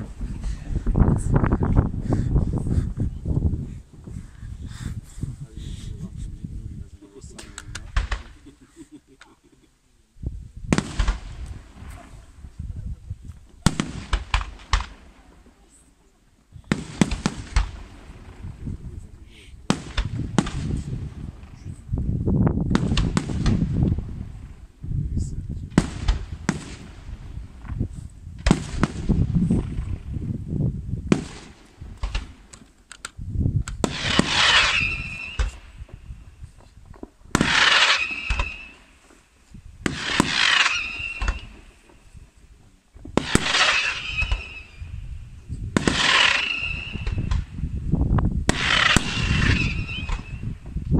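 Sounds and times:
firework bangs: 0:07.8 - 0:08.5, 0:10.7 - 0:12.1, 0:13.6 - 0:15.4, 0:16.6 - 0:18.9, 0:19.6 - 0:21.7, 0:22.6 - 0:24.6, 0:25.7 - 0:30.2, 0:31.0 - 0:32.5, 0:33.8 - 0:36.3, 0:37.2 - 0:42.2, 0:43.0 - 0:45.0, 0:45.7 - 0:47.6, 0:48.4 - 0:50.8
firework shells bursting: 0:31.1 - 0:36.1, 0:37.1 - 0:42.2, 0:43.0 - 0:44.9, 0:45.8 - 0:47.5, 0:48.4 - 0:50.6.

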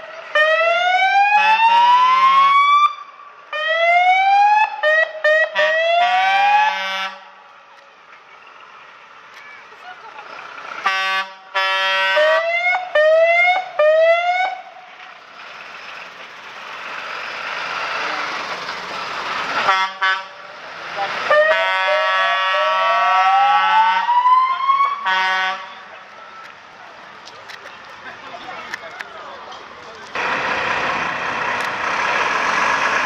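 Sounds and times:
fire truck siren: 0:00.0 - 0:07.4, 0:10.8 - 0:14.8, 0:19.5 - 0:27.1
truck engine and tyres passing: 0:04.7 - 0:33.0
air horn blasts: 0:10.8 - 0:12.4, 0:19.6 - 0:20.4, 0:25.0 - 0:25.8.

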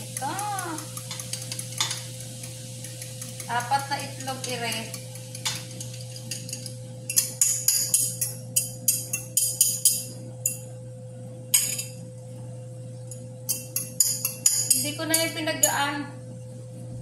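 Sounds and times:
fork clinking on ceramic bowl: 0:00.8 - 0:10.7, 0:13.5 - 0:15.8.

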